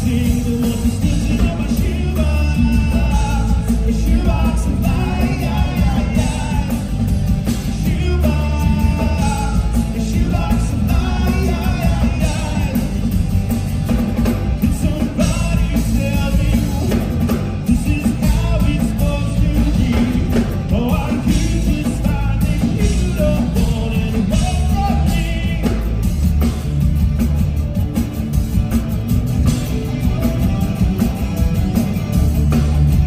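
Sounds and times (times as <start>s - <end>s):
man singing: 0.0s - 13.3s, 14.6s - 26.5s
live rock band playing: 0.0s - 33.0s.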